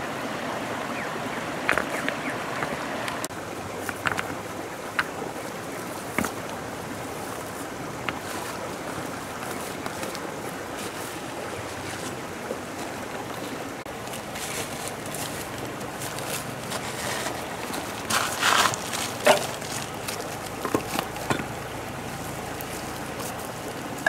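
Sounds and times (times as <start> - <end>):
stones rustling and clattering: 3.8 - 5.2, 14.1 - 21.6.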